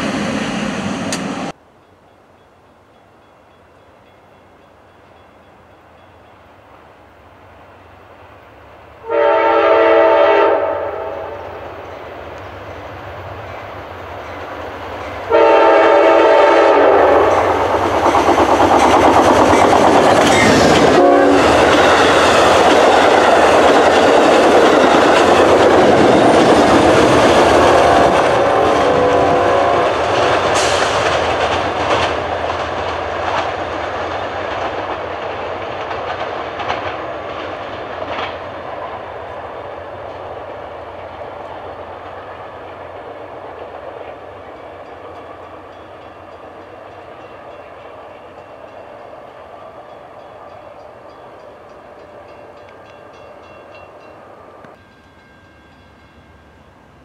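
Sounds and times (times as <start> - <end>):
train wheel and rail noise: 0.0 - 57.0
train horn blasts: 9.0 - 11.9, 15.3 - 17.6, 20.6 - 21.9, 27.5 - 30.2.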